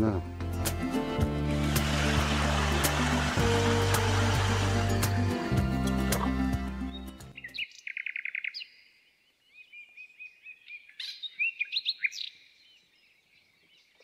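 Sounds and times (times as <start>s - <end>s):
songbirds singing: 6.3s - 14.0s.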